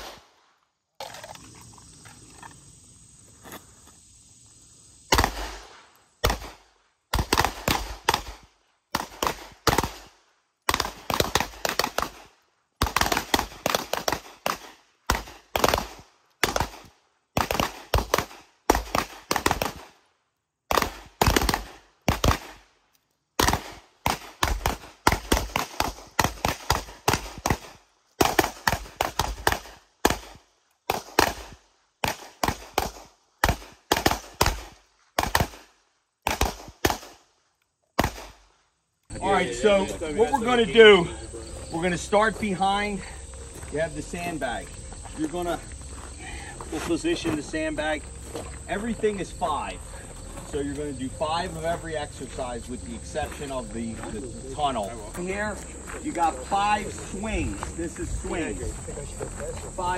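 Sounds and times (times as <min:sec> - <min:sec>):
pistol shots: 0:05.1 - 0:20.0, 0:20.7 - 0:22.7, 0:23.4 - 0:37.3, 0:38.0 - 0:38.5.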